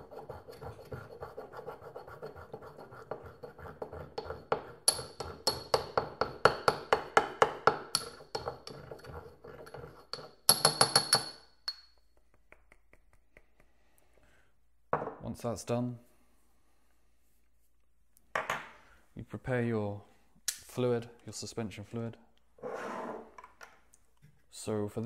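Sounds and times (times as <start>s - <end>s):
pestle grinding in ceramic mortar: 0.0s - 11.3s.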